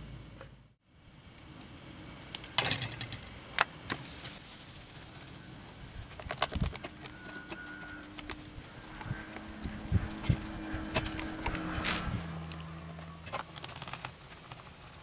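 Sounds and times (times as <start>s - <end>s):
cloth rubbing metal pan: 4.0s - 14.6s.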